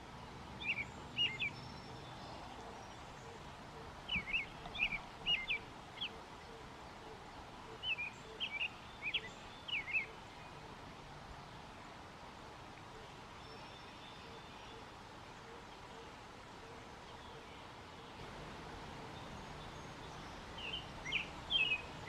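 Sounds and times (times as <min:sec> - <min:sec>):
low background hiss: 0:00.0 - 0:22.0
bird chirping: 0:00.1 - 0:10.7, 0:17.1 - 0:22.0.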